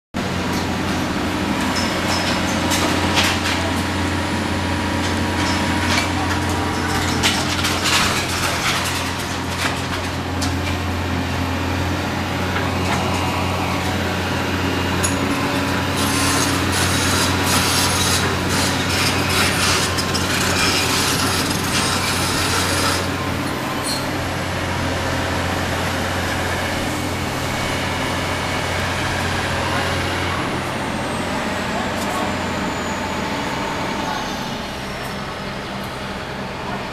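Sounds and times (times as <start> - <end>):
diesel engine running: 0.2 - 36.9
metal crunching and scraping: 1.4 - 11.0, 14.9 - 24.1.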